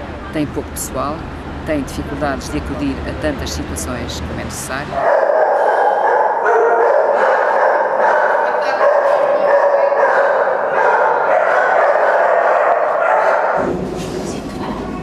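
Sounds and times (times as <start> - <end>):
many dogs barking and yelping: 5.0 - 13.6.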